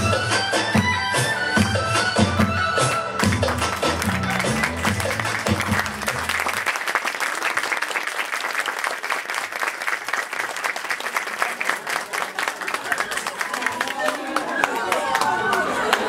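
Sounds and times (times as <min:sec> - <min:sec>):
audience applauding: 0:03.2 - 0:16.0.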